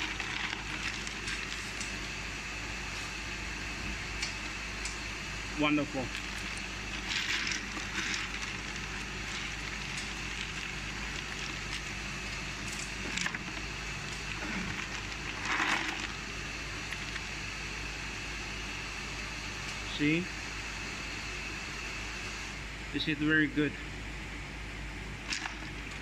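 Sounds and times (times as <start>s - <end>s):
ice rattling and clinking: 0.0s - 1.9s, 6.1s - 16.2s, 25.3s - 26.0s
ice machine running: 0.0s - 5.0s, 5.6s - 20.2s, 25.2s - 26.0s.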